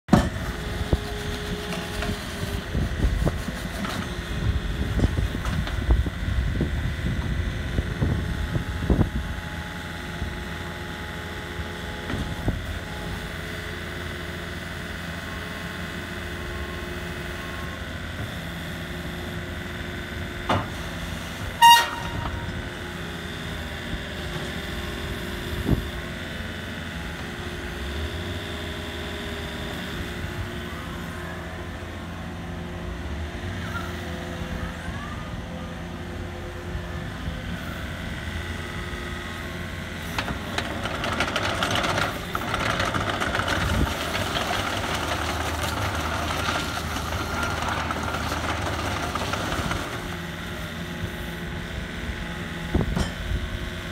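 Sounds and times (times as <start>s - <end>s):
excavator diesel engine running: 0.1s - 53.9s
short horn beep: 21.6s - 22.5s.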